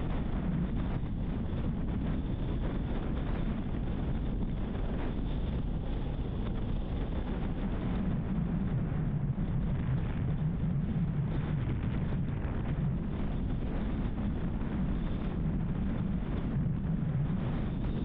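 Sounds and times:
car tyre and wind rumble: 0.0s - 18.0s.

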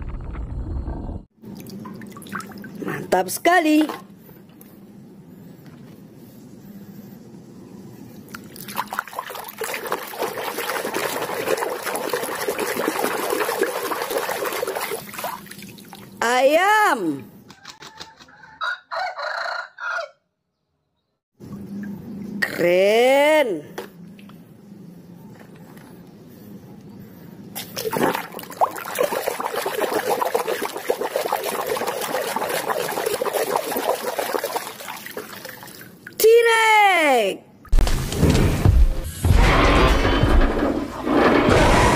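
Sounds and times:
water sloshing and splashing in tub: 1.4s - 3.1s, 8.3s - 16.2s, 27.6s - 36.2s.

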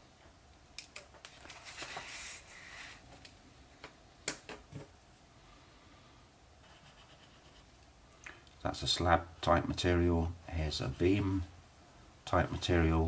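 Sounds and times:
paper rustling: 1.2s - 3.0s.

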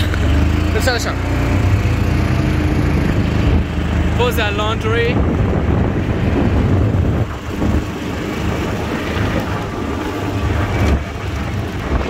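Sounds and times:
vehicle engine running: 0.0s - 12.0s
wind rumbling on microphone: 1.3s - 12.0s
tyres rolling over gravel: 7.1s - 12.0s.

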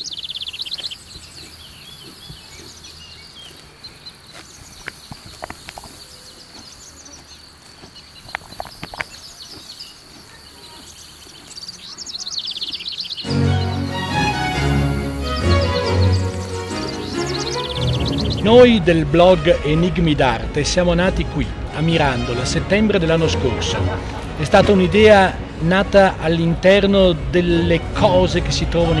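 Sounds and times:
songbirds trilling and chirping: 0.0s - 29.0s
crisp clicks: 7.8s - 9.2s
high insect drone: 13.3s - 18.6s.

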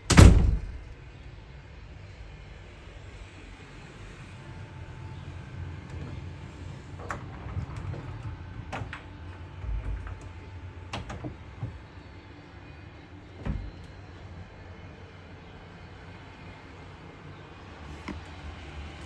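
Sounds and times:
steady low hum: 0.0s - 19.0s.

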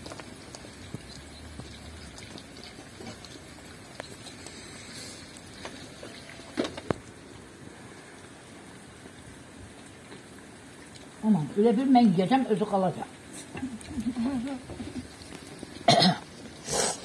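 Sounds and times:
chicken sizzling in hot oil: 0.0s - 7.8s, 13.2s - 17.0s.

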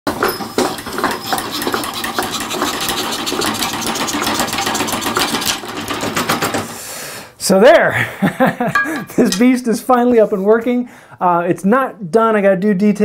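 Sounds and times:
scroll saw clattering through wood: 0.1s - 6.8s.

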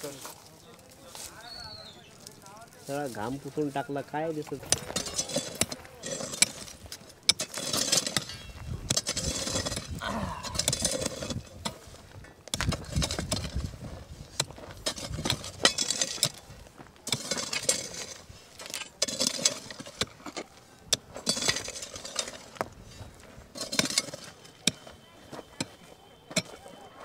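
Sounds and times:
scraping loose earth: 0.0s - 27.0s
hoes chopping into stony soil: 4.5s - 26.6s
metal clinking on stone: 23.5s - 26.8s.

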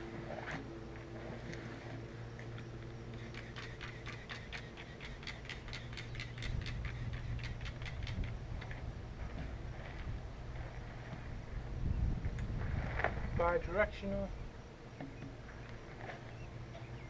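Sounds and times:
spray bottle squirting: 3.2s - 8.2s.

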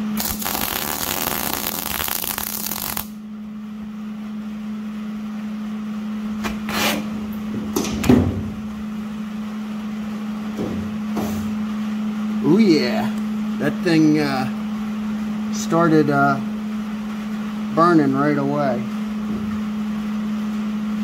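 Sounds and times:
welding arc crackling: 0.0s - 3.2s
steady low hum: 0.0s - 21.0s.

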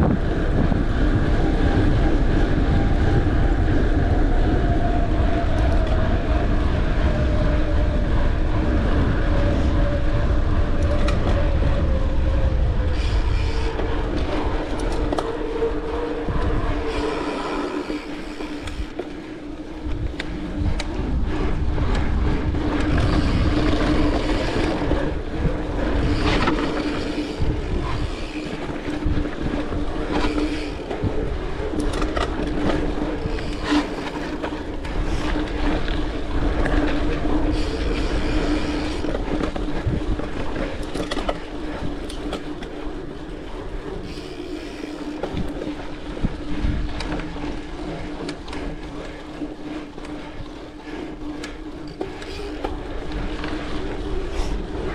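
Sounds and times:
bike rattling over bumps: 0.0s - 54.9s
bike tyres rolling on dirt: 0.0s - 54.9s.

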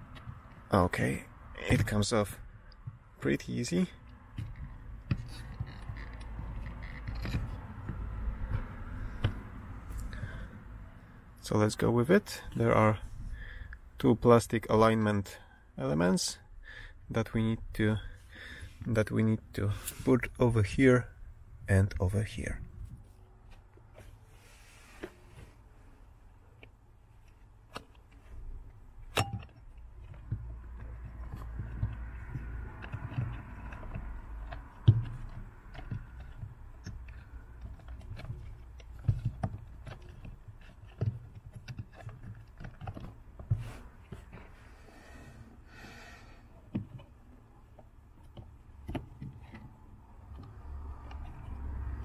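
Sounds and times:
light scrapes: 23.9s - 25.7s.

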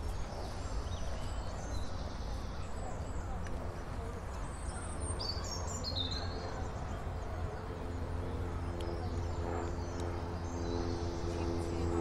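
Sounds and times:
steady low rumble: 6.3s - 12.0s.

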